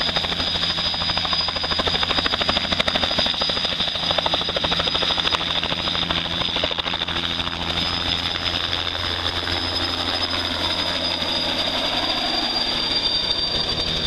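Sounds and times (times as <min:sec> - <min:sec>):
helicopter rotor beat: 0:00.0 - 0:14.0
helicopter turbine whine: 0:00.0 - 0:14.0.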